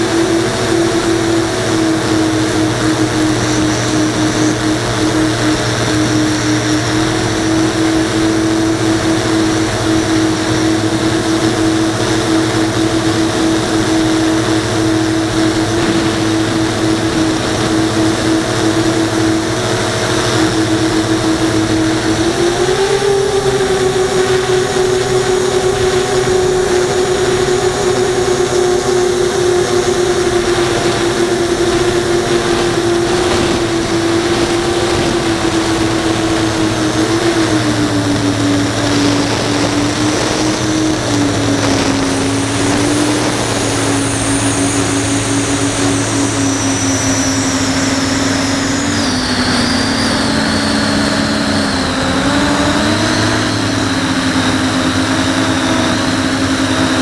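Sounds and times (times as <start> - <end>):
drone propeller and motor whine: 0.0 - 57.0
rush of air: 13.0 - 22.3, 23.5 - 50.4.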